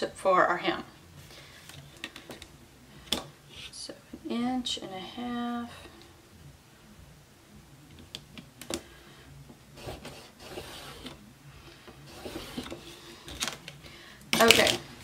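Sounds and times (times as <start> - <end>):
chalk scratching on fabric: 9.8 - 11.1.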